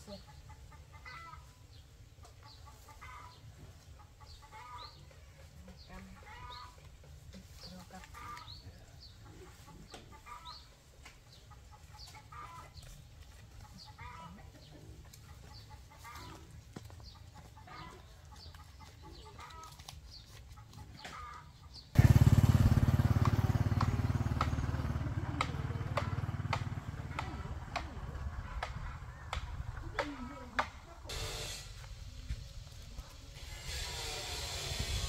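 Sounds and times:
chickens clucking: 0.0 - 34.0.

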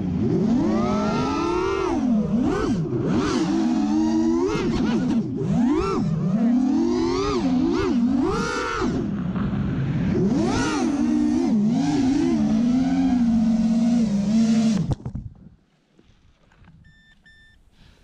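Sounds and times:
drone motors whining: 0.0 - 9.1.

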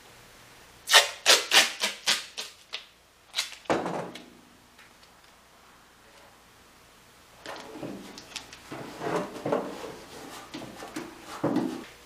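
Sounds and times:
duct tape ripping off roll: 0.9 - 3.7.

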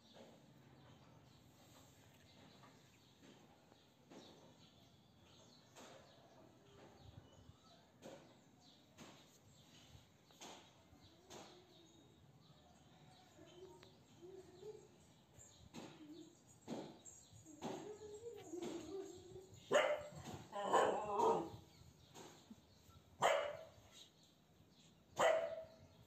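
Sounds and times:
dog barking: 19.7 - 21.5, 23.2 - 23.8, 25.2 - 25.8.

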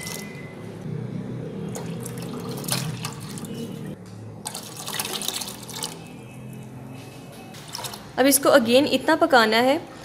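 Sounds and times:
water pouring into a pot: 1.7 - 3.6, 4.5 - 6.1.

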